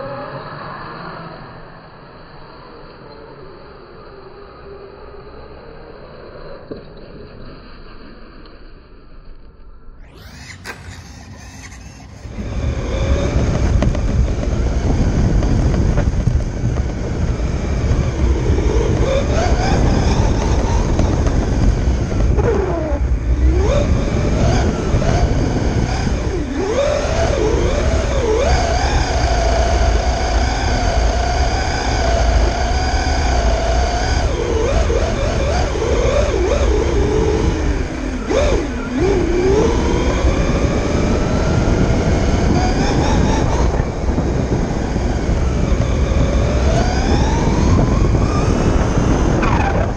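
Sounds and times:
low rumble of tyres and air: 0.0 - 49.9
electric motor whining: 10.0 - 49.9.

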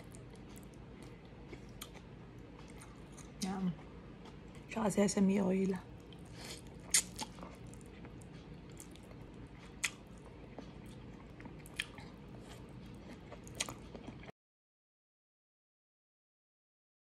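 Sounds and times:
person chewing noodles: 0.0 - 4.7, 6.0 - 14.3.

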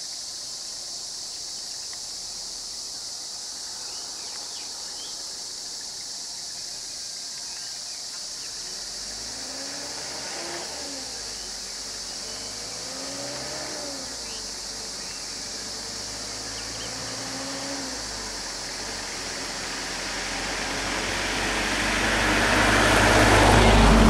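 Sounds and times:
road traffic passing slowly: 0.0 - 24.0
approaching vehicle engine and tyres: 0.2 - 24.0
rising and falling engine tones: 8.8 - 24.0.

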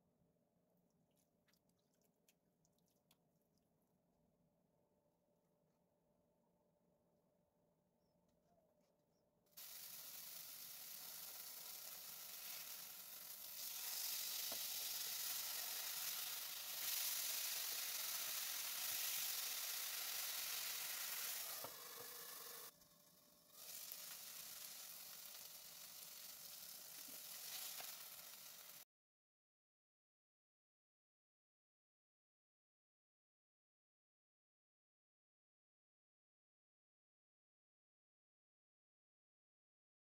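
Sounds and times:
fish frying in oil: 9.6 - 28.8.

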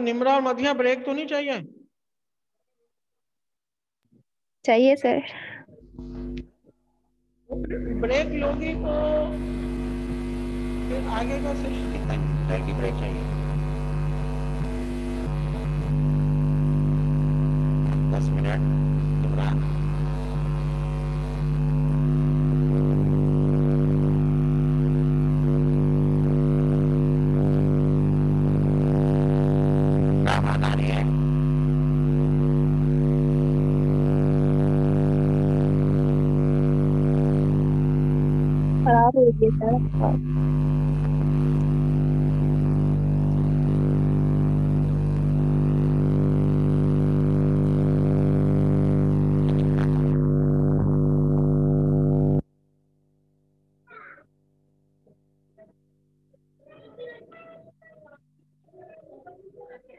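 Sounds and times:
loud electrical hum: 7.5 - 52.5.

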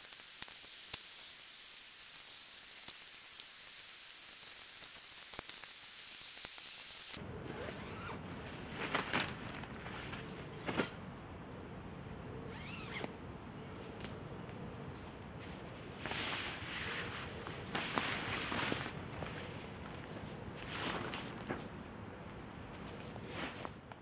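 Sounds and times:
steady hiss: 0.0 - 7.2, 14.8 - 23.9
nylon fabric rustling: 7.0 - 10.9, 14.9 - 23.8.

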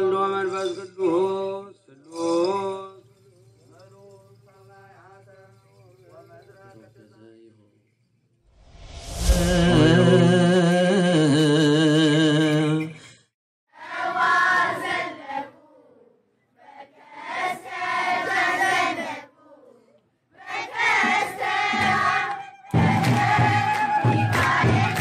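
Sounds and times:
children's choir singing a hymn: 13.8 - 25.0.

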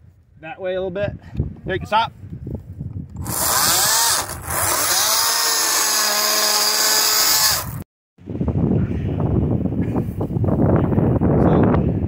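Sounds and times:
chainsaw cutting wood: 3.2 - 7.9.

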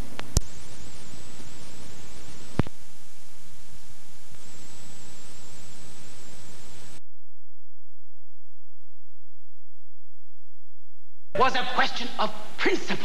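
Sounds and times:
videotape static hiss: 0.0 - 7.0, 11.4 - 13.0
thin high whine: 0.0 - 13.0.

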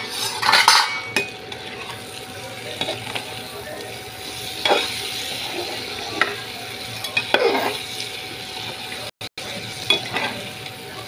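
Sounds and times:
spatula scraping pan: 0.0 - 2.1, 2.7 - 8.8
vegetables sizzling in oil: 0.0 - 11.0.

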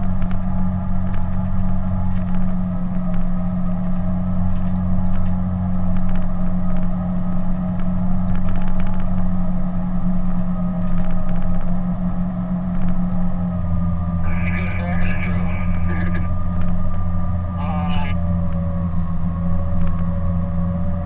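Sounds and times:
bulldozer diesel engine droning: 11.8 - 21.0.

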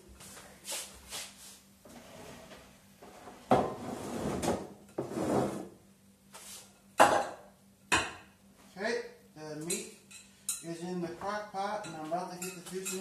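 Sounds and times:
cookware knocking on counter: 7.0 - 8.2
cookware scraping: 11.8 - 13.0.

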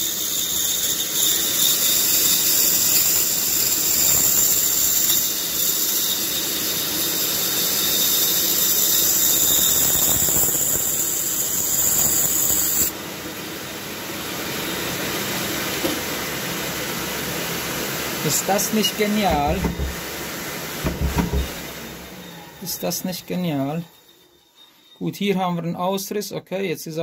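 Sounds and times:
band saw cutting wood: 0.0 - 12.9, 18.3 - 25.0.

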